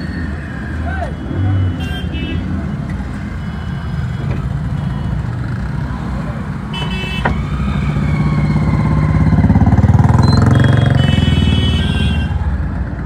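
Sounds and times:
street traffic: 0:00.0 - 0:13.0
vehicle horn: 0:10.4 - 0:12.4.

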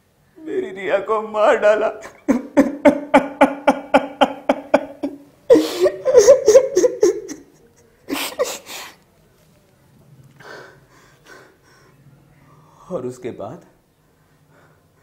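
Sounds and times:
man sobbing: 0:01.6 - 0:09.0
sharp gasping breaths: 0:08.1 - 0:09.0, 0:10.4 - 0:12.0.

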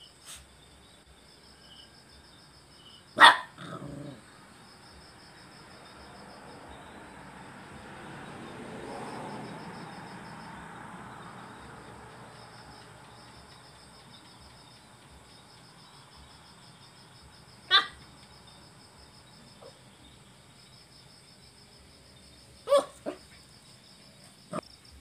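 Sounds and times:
crickets trilling: 0:00.0 - 0:25.0
dog barking: 0:03.2 - 0:04.2, 0:17.7 - 0:18.1, 0:22.7 - 0:23.4.

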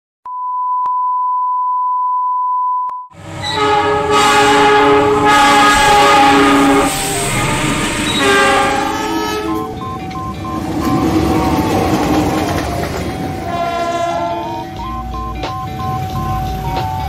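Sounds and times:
locomotive horn chord: 0:03.2 - 0:09.8, 0:13.4 - 0:14.9
train rumbling: 0:03.2 - 0:17.0
steady electronic beep: 0:06.9 - 0:17.0.

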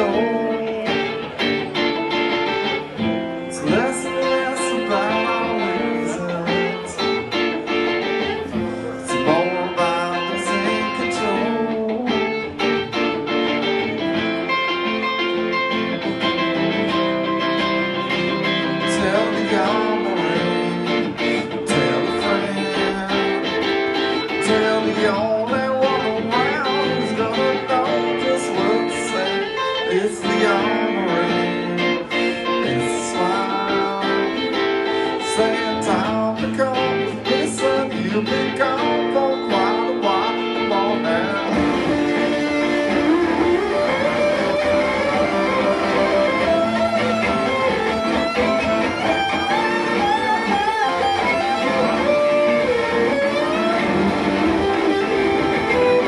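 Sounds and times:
acoustic guitar playing: 0:00.0 - 0:56.0.

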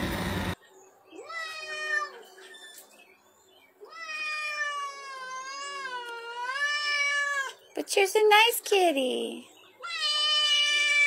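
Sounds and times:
cat yowling: 0:01.2 - 0:02.4, 0:03.9 - 0:07.6, 0:09.8 - 0:11.0.

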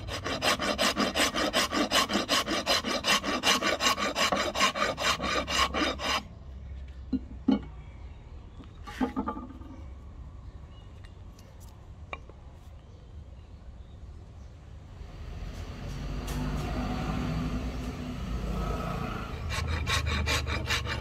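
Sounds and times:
rasp filing wooden handle: 0:00.0 - 0:06.3, 0:17.8 - 0:21.0.

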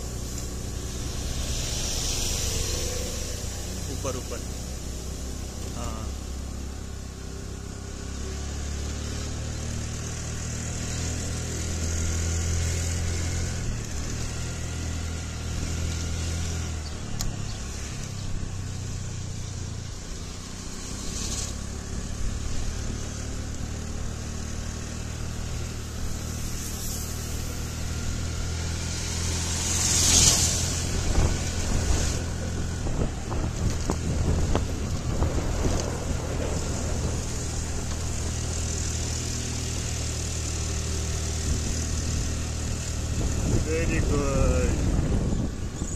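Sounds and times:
rushing hiss: 0:00.0 - 0:06.2, 0:25.5 - 0:32.3
low wind buffeting: 0:00.0 - 0:06.3, 0:27.5 - 0:39.7, 0:41.3 - 0:45.9
motor scooter engine hum: 0:00.0 - 0:45.9.

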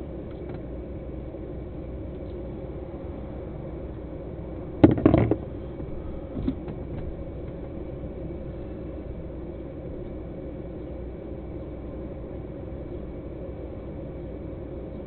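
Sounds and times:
steady low hum: 0:00.0 - 0:15.0
knocks and rattles: 0:04.8 - 0:05.5.

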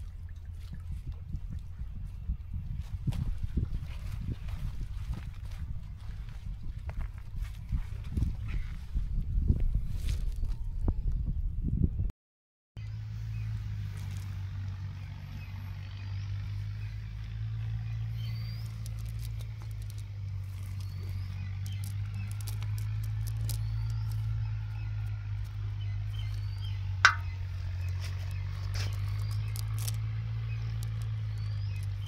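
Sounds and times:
low engine drone: 0:00.0 - 0:07.4, 0:12.8 - 0:32.0
net clicks and rustles: 0:18.6 - 0:32.0.

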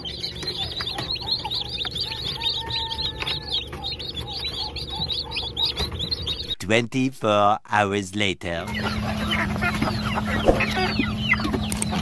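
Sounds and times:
chicks peeping: 0:00.0 - 0:06.6, 0:08.5 - 0:12.0
steady low hum: 0:08.6 - 0:12.0.

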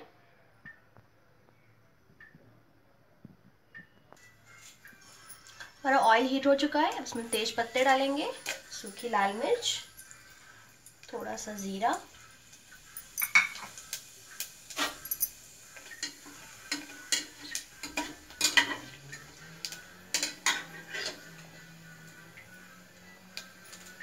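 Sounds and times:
spices sizzling in oil: 0:04.2 - 0:24.0
metal spatula scraping pot: 0:14.7 - 0:22.2.

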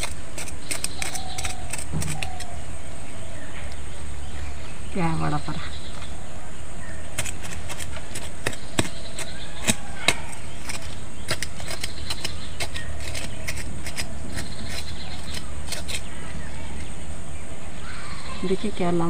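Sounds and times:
digging scratches in soil: 0:00.0 - 0:02.6, 0:07.1 - 0:16.9.

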